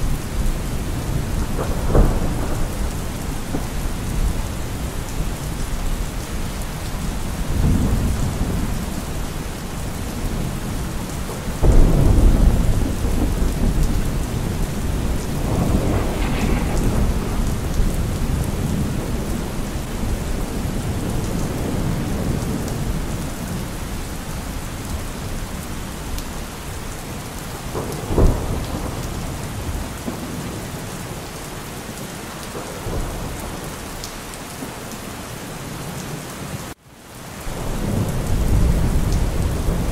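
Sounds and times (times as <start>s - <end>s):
thunder rumbling: 0.0s - 31.2s, 37.5s - 39.9s
steady rain: 0.0s - 39.9s
sharp thunder clap: 0.9s - 4.4s, 11.3s - 23.2s.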